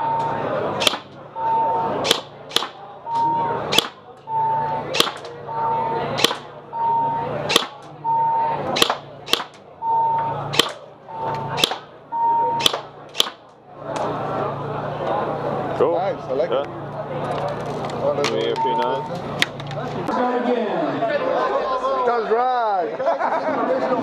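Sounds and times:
short electronic beep: 0:00.0 - 0:00.4, 0:01.3 - 0:01.9, 0:03.0 - 0:03.6, 0:04.2 - 0:04.8, 0:05.4 - 0:07.4, 0:08.0 - 0:08.6, 0:09.8 - 0:10.5, 0:11.1 - 0:12.7, 0:18.4 - 0:19.2
airsoft rifle shots: 0:00.8 - 0:01.2, 0:02.0 - 0:04.1, 0:04.9 - 0:05.4, 0:06.1 - 0:06.6, 0:07.5 - 0:08.0, 0:08.7 - 0:09.7, 0:10.5 - 0:10.9, 0:11.6 - 0:12.0, 0:12.6 - 0:13.5.

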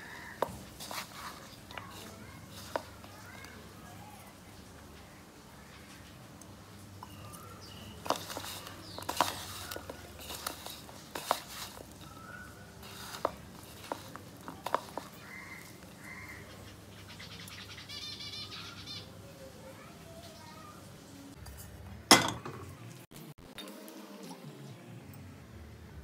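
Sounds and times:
hands tossing food in bowl: 0:00.0 - 0:04.3, 0:07.0 - 0:16.7
bird calling: 0:14.9 - 0:19.2.

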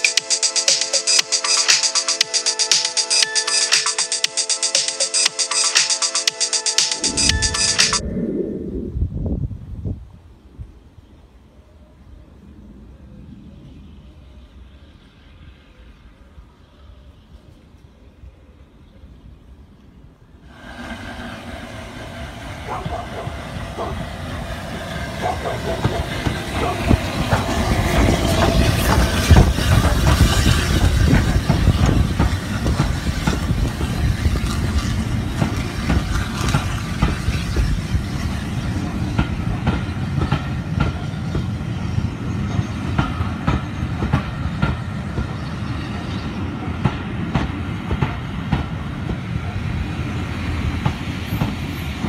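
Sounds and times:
steam locomotive passing: 0:00.0 - 0:52.0
train wheels clickety-clack: 0:20.7 - 0:52.0.

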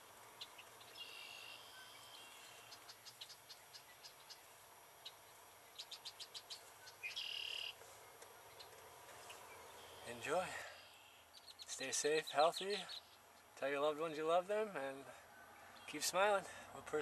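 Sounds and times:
sharp bird chirps: 0:00.4 - 0:07.8.

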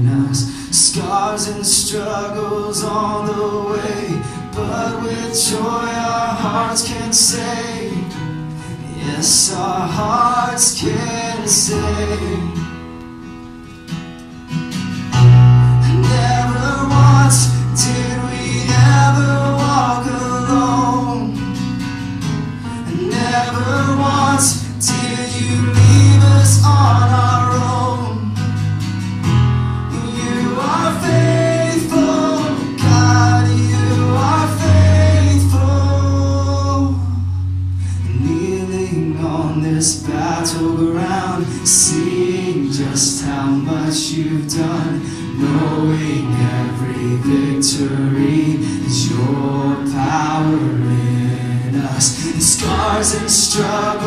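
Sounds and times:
voices singing together: 0:00.0 - 0:12.9, 0:15.8 - 0:21.6, 0:22.6 - 0:28.5, 0:29.9 - 0:37.2, 0:38.2 - 0:54.0
guitar: 0:00.0 - 0:54.0.

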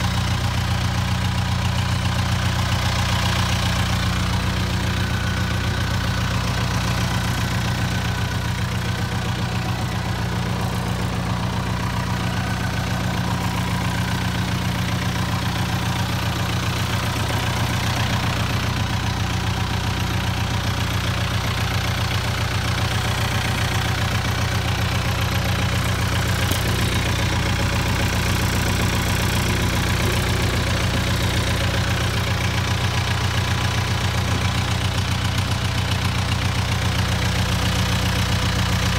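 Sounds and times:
tractor diesel engine idling: 0:00.0 - 0:38.9.

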